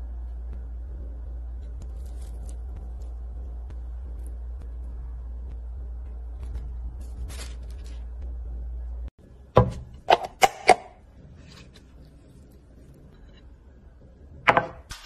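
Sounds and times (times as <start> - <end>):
low hum: 0.0 - 15.0
rustling of food handling: 6.4 - 8.2.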